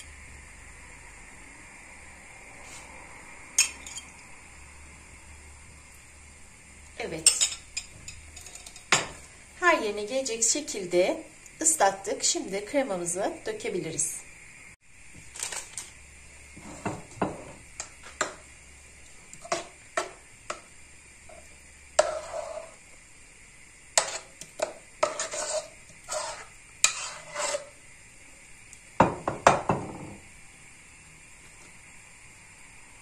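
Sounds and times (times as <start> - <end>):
metal spoon scraping a pot: 3.6 - 4.2, 21.3 - 22.8, 24.0 - 27.8.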